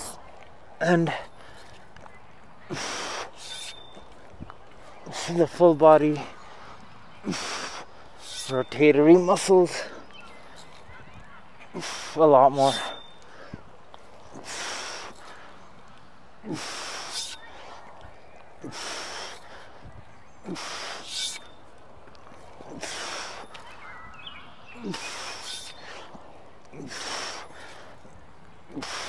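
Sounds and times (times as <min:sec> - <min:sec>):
man breathing hard: 0:02.7 - 0:03.8, 0:06.2 - 0:08.5, 0:14.3 - 0:15.7, 0:16.4 - 0:17.9, 0:18.5 - 0:21.6, 0:22.5 - 0:23.7, 0:24.8 - 0:29.0.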